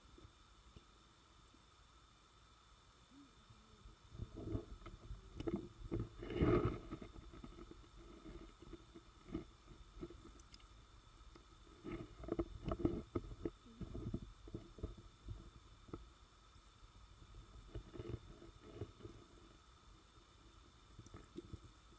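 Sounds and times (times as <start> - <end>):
muffled underwater thumps and gurgles: 11.8 - 16.2.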